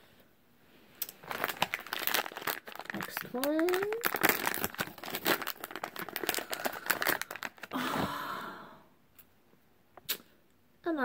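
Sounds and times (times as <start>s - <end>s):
foil packet crinkling: 1.0s - 7.8s
foil tearing rustle: 1.1s - 7.7s.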